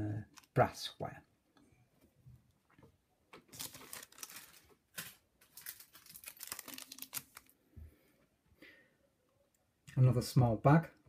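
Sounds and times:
plastic bag crinkling: 3.5s - 7.6s.

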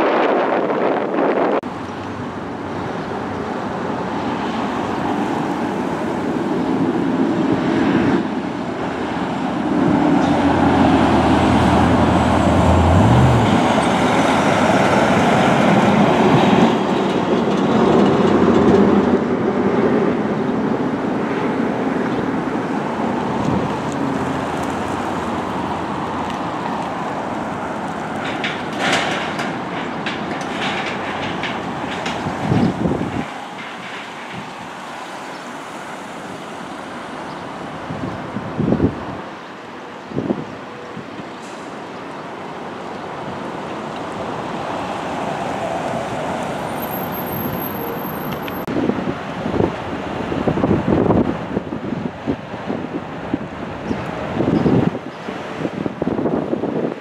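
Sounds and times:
rumble of vehicles: 0.0s - 57.0s
low engine hum: 9.0s - 15.2s.

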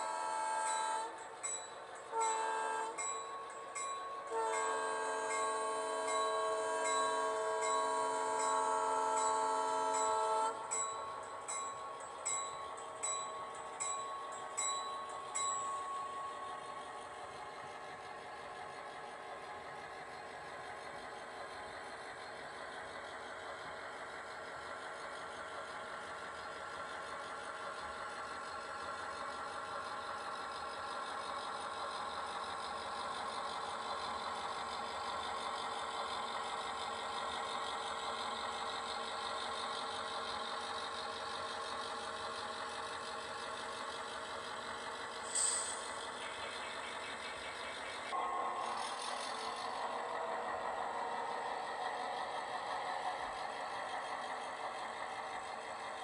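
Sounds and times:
locomotive bell ringing: 0.2s - 17.1s
diesel engine drone: 32.9s - 56.0s.

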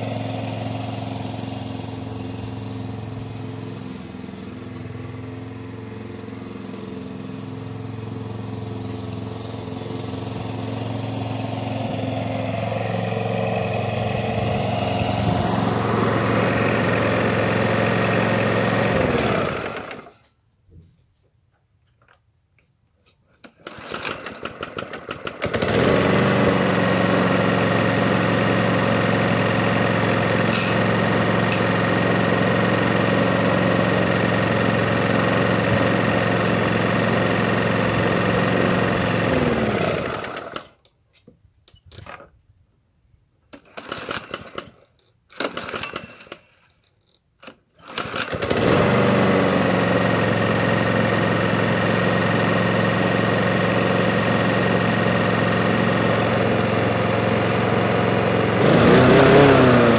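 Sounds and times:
lawnmower engine running: 0.0s - 20.3s, 23.4s - 40.9s, 43.5s - 46.8s, 47.4s - 59.9s
lawnmower pull-start bursts: 0.0s - 20.3s, 23.4s - 41.0s, 43.5s - 59.9s.

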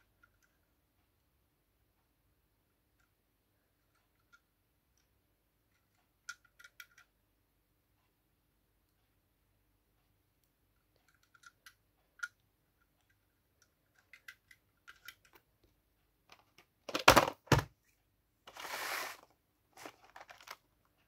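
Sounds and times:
small clicks and taps: 3.8s - 7.2s, 10.4s - 16.8s
plastic packaging rustling: 18.5s - 20.6s.

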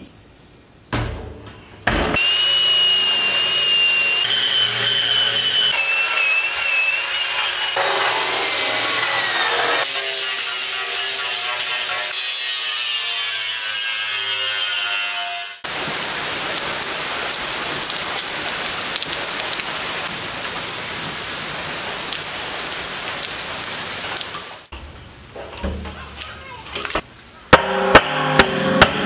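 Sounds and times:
angle grinder grinding steel: 2.2s - 15.5s
rain pattering on pavement: 15.7s - 25.4s.

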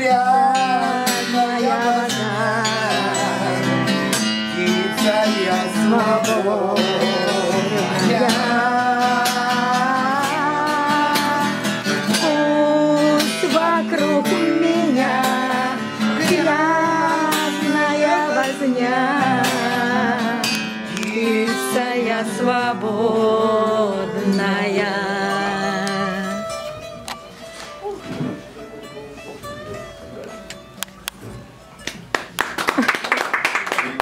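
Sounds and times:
man singing: 0.0s - 26.6s
acoustic guitar strumming: 0.0s - 32.4s.

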